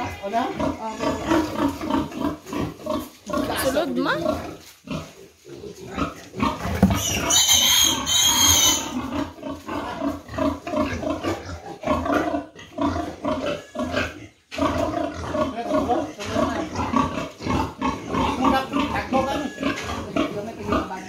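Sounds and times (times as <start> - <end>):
piglet squealing: 0.0 - 1.6, 6.8 - 9.1, 13.4 - 14.0, 18.4 - 19.9
pigs grunting: 0.0 - 21.0.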